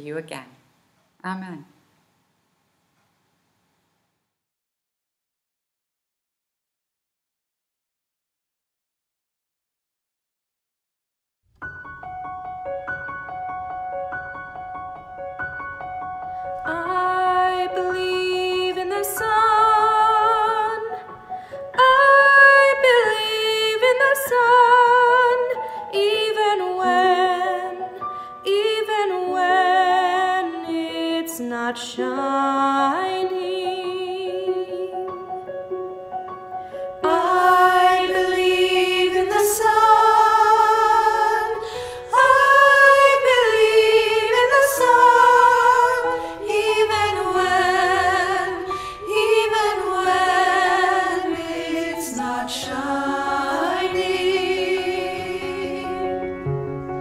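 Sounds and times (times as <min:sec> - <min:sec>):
choir singing: 0:16.6 - 0:21.1, 0:21.8 - 0:35.1, 0:37.0 - 0:57.0
woman singing with vibrato: 0:16.7 - 0:21.0, 0:21.8 - 0:35.1.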